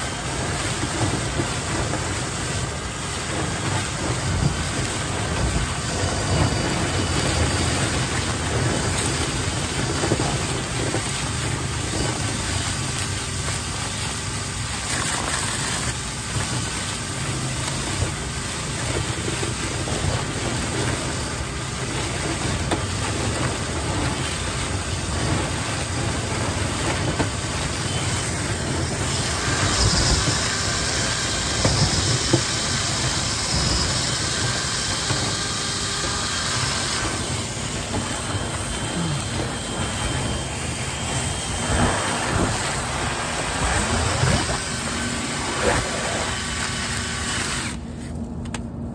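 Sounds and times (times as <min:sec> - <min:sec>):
steady rushing noise: 0:00.0 - 0:48.9
cordless drill spinning: 0:23.4 - 0:47.9.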